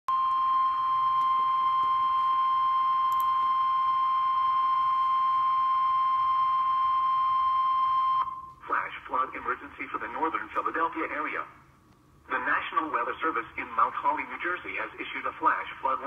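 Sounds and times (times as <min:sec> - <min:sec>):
steady high alarm tone: 0:00.1 - 0:08.6.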